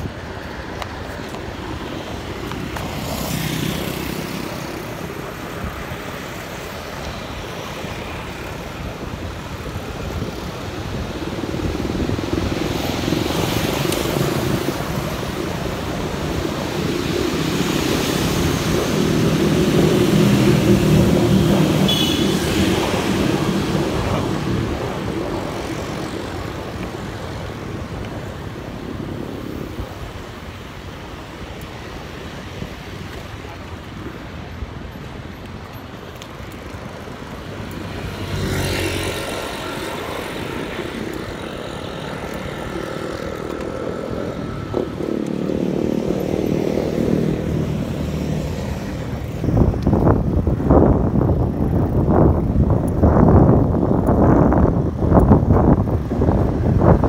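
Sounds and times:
minibuses passing: 0:00.0 - 0:57.0
motorcycles passing: 0:00.0 - 0:57.0.

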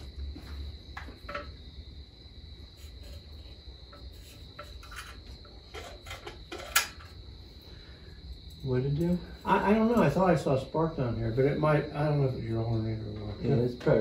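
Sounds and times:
tools clicking and knocking: 0:04.6 - 0:07.2.

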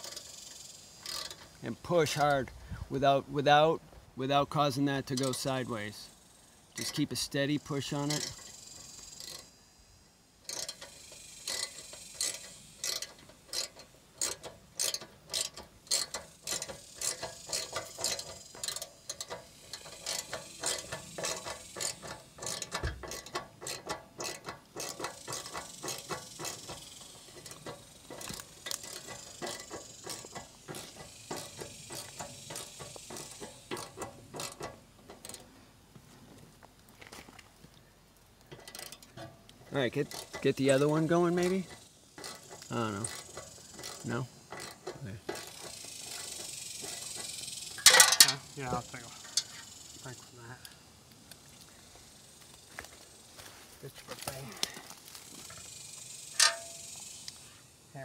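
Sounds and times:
ratcheting screwdriver clicking: 0:01.0 - 0:01.4, 0:10.5 - 0:35.4.

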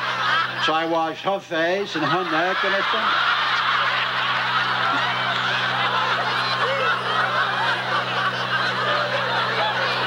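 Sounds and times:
audience laughing: 0:00.0 - 0:10.0
steady low hum: 0:00.0 - 0:10.0.

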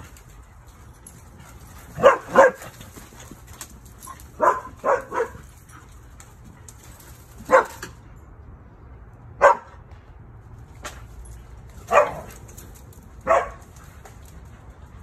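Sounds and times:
dog barking: 0:02.0 - 0:02.7, 0:04.4 - 0:05.4, 0:07.4 - 0:07.9, 0:09.4 - 0:09.8, 0:11.9 - 0:12.3, 0:13.2 - 0:13.7.

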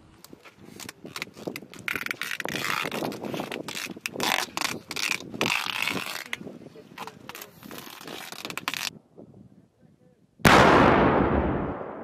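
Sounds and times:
adhesive tape ripping off roll: 0:00.7 - 0:06.4, 0:07.0 - 0:08.9.

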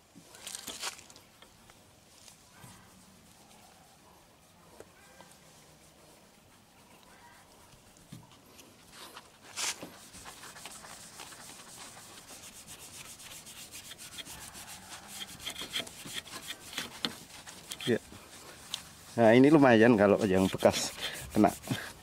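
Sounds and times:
foam pad rubbing car paint: 0:09.5 - 0:22.0.

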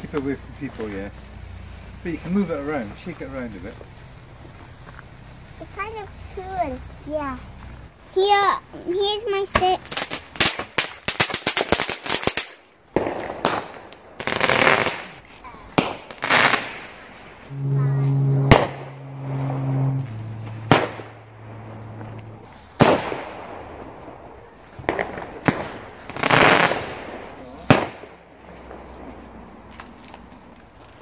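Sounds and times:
fireworks crackling: 0:00.0 - 0:31.0
firework bangs: 0:09.5 - 0:29.7
rockets hissing whooshes: 0:09.5 - 0:29.7.

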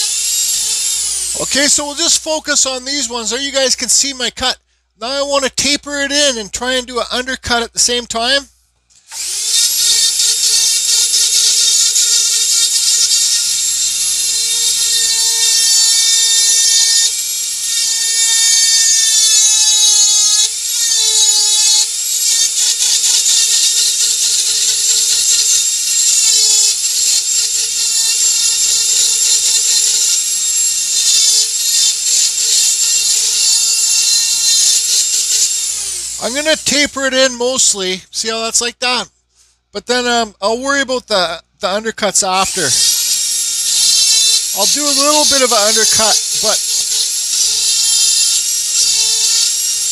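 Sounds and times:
rotary tool whine carving wood: 0:00.0 - 0:03.0, 0:08.9 - 0:36.9, 0:42.4 - 0:49.9.

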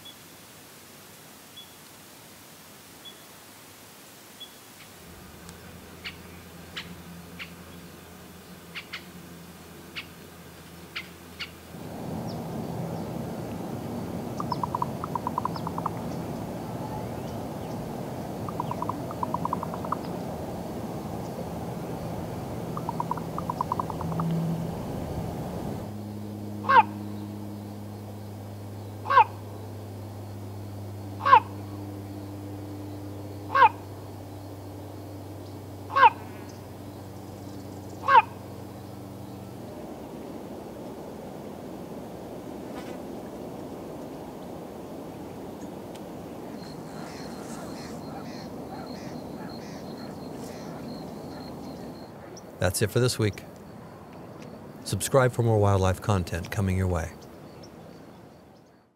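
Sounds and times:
small birds chirping: 0:04.4 - 0:11.6, 0:14.2 - 0:24.8, 0:26.6 - 0:39.8, 0:45.1 - 0:58.9
steady low hum: 0:04.9 - 0:58.9
low background rumble: 0:05.0 - 0:58.8
raven knocking call: 0:14.3 - 0:16.2, 0:18.4 - 0:20.2, 0:22.7 - 0:24.4, 0:26.6 - 0:27.0, 0:29.0 - 0:29.4, 0:31.2 - 0:31.7, 0:33.5 - 0:33.9, 0:35.9 - 0:36.6, 0:38.0 - 0:38.4, 0:46.7 - 0:52.4.

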